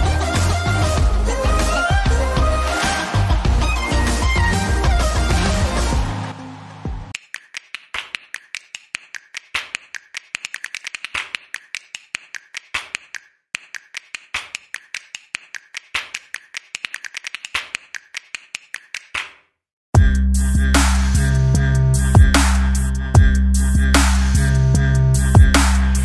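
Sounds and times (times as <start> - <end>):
background music: 0.0 - 7.2
rapid sharp clicks: 7.1 - 19.4.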